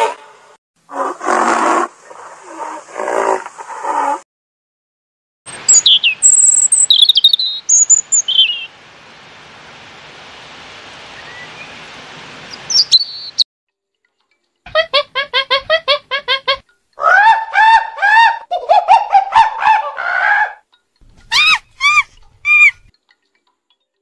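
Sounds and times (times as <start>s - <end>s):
robin singing: 5.5s - 8.7s, 12.5s - 13.4s, 21.0s - 22.9s
steady hiss: 7.7s - 13.3s
animal giving rapid pulsed calls: 21.2s - 22.9s.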